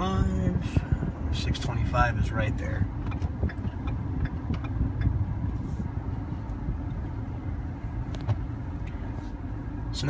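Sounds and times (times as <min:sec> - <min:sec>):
truck engine rumbling: 0:00.0 - 0:10.0.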